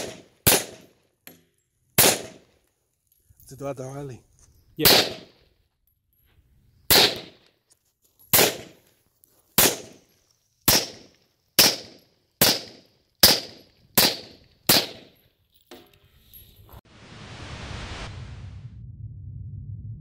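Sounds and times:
pistol shots: 0.0 - 0.9, 2.0 - 2.4, 4.8 - 5.4, 6.9 - 7.4, 8.3 - 8.8, 9.6 - 10.0, 10.7 - 15.2.

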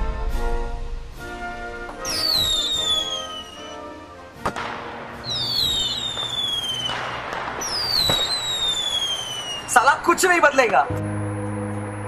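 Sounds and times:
firework bang: 0.0 - 3.8, 4.4 - 9.8
crackling firework burst: 0.0 - 10.6
firework whistles: 1.2 - 3.9, 5.1 - 9.9.

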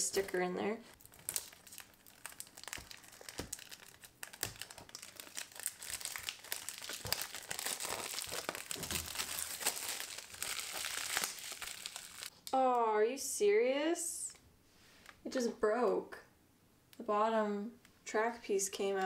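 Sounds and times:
cellophane crinkling: 1.0 - 12.3.

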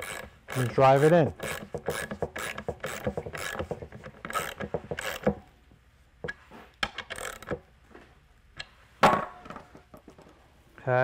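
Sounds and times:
socket ratchet clicking: 0.0 - 5.4, 6.8 - 7.6.

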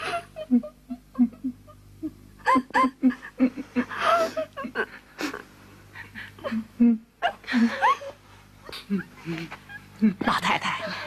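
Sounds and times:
women sobbing: 0.0 - 8.3.

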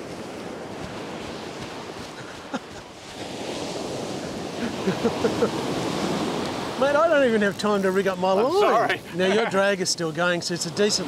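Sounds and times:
wind buffeting microphone: 0.0 - 8.3
ocean surf breaking: 0.0 - 11.0.

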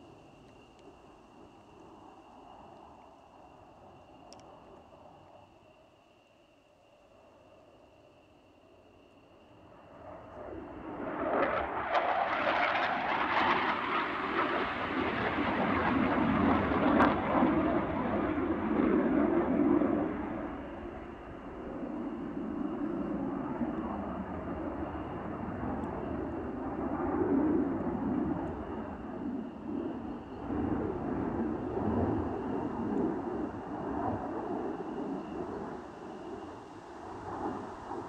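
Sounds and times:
jet fighter flying by: 9.6 - 38.0.

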